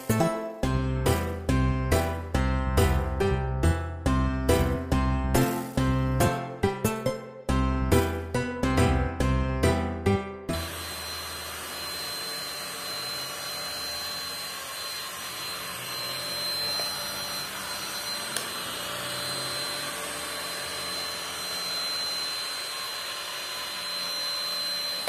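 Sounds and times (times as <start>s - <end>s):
stick vacuum running: 10.5s - 25.0s.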